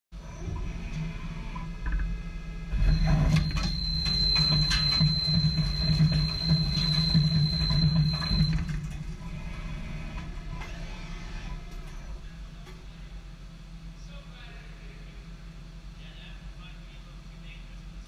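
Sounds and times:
lathe hum and high whine: 0:00.2 - 0:18.0.

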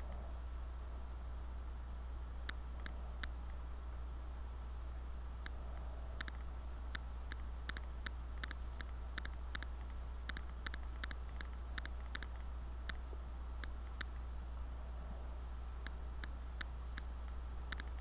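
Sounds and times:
steady low hum: 0:00.0 - 0:18.0
computer mouse clicking: 0:02.5 - 0:03.6, 0:05.4 - 0:14.2, 0:15.8 - 0:18.0.

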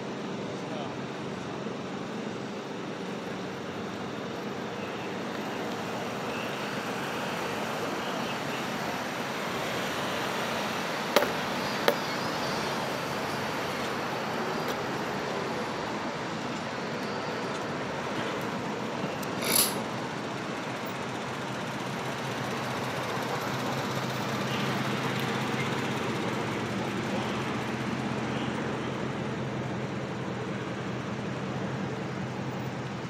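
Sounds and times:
street traffic: 0:00.0 - 0:33.0.

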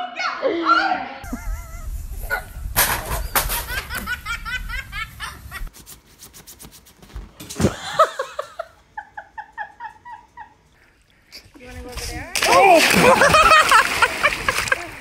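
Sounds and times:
person laughing hard: 0:01.2 - 0:02.0, 0:03.5 - 0:05.7, 0:07.7 - 0:10.5, 0:13.0 - 0:14.9.

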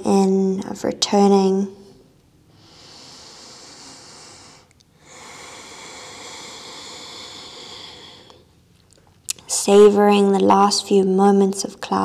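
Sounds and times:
woman breathing slowly: 0:02.5 - 0:08.6.

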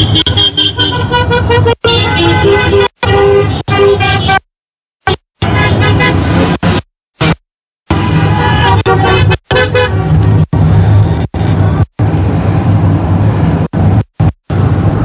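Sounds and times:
car horns honking: 0:00.0 - 0:06.6, 0:07.2 - 0:10.4.

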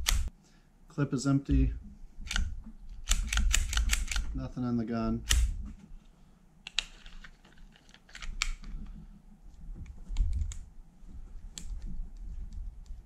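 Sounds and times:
pistol slide clicks and clacks: 0:02.3 - 0:04.3, 0:07.9 - 0:08.7.

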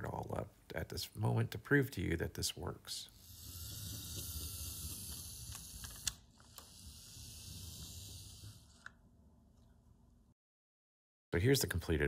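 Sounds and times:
model train motor whirring: 0:03.1 - 0:09.0.

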